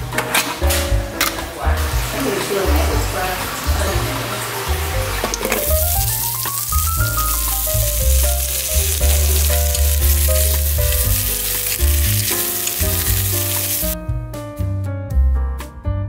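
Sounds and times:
background music with bass line: 0:00.0 - 0:16.0
oil sizzling: 0:02.0 - 0:14.0
chopsticks stirring in pot: 0:05.5 - 0:14.0.

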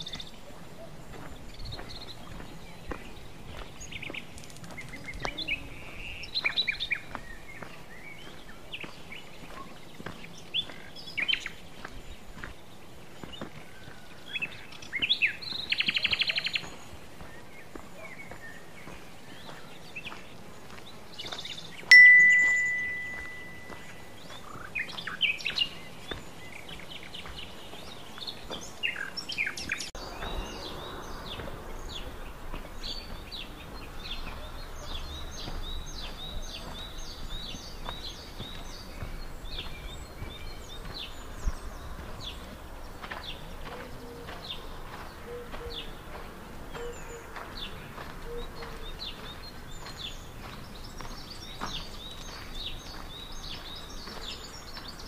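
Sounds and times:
songbirds singing: 0:00.0 - 0:55.0
metallic ding: 0:21.9 - 0:23.8.

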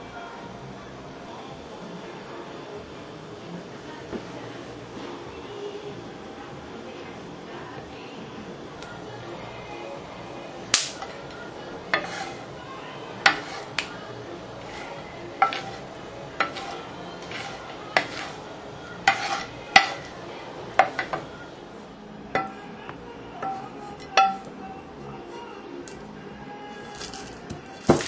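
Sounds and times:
metal utensil clinking cookware: 0:10.7 - 0:12.5, 0:13.2 - 0:14.0, 0:14.6 - 0:20.1, 0:20.7 - 0:21.2, 0:22.3 - 0:22.7, 0:23.4 - 0:24.5, 0:26.9 - 0:28.0.

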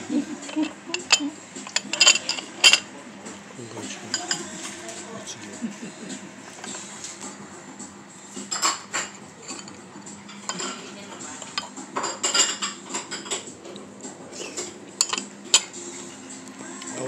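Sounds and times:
fork clinking and scraping on shell: 0:00.4 - 0:02.9, 0:04.1 - 0:04.8, 0:08.5 - 0:13.8, 0:14.4 - 0:15.8.

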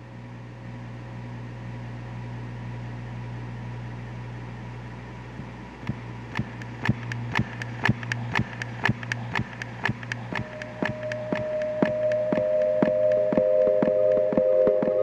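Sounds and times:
ambient low drone: 0:05.8 - 0:15.0
sharp clicks: 0:05.8 - 0:15.0
high held tones: 0:06.0 - 0:15.0.

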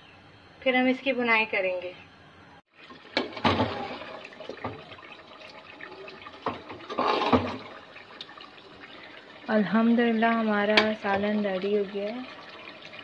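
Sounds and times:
gravy bubbling and sizzling: 0:02.7 - 0:13.0
metal ladle scraping pot: 0:06.8 - 0:07.6.

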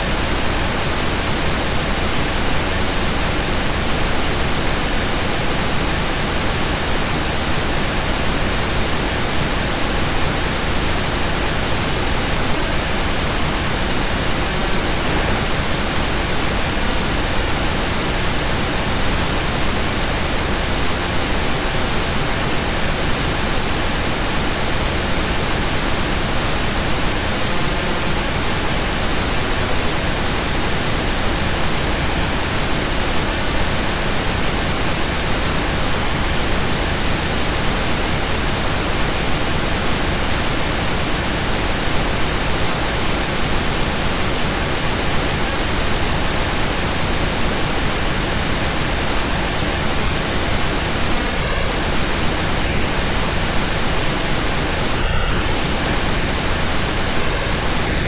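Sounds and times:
synthesized noise hiss: 0:00.0 - 0:58.0.

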